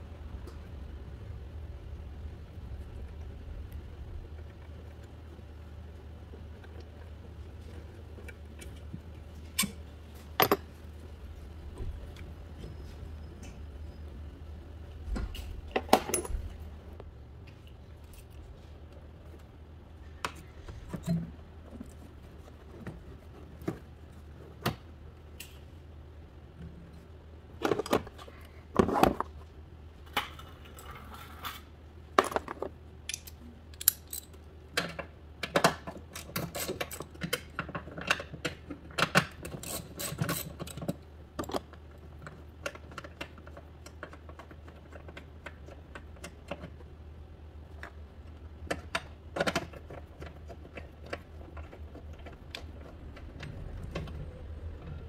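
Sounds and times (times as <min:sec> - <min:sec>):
low hum: 0:51.3 - 0:55.0.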